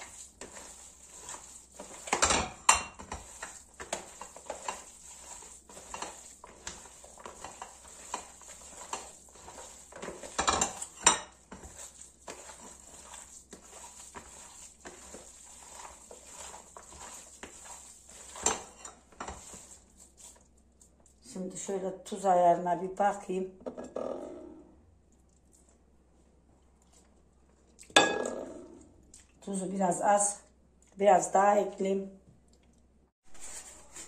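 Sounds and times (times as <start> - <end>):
hands mixing meat in a bowl: 0.0 - 23.2, 33.3 - 34.0.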